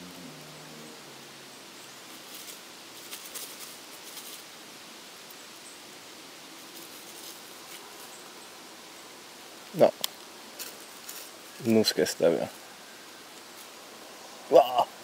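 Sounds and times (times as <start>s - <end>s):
faint steady hiss: 0.0s - 15.0s
soft rustles and clicks: 2.1s - 4.5s, 6.6s - 8.2s, 9.6s - 12.6s.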